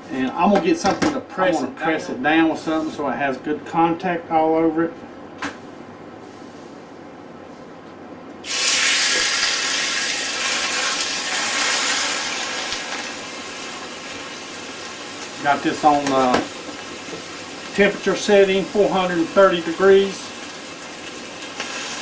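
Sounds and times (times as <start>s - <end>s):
steak sizzling in skillet: 8.4s - 22.0s.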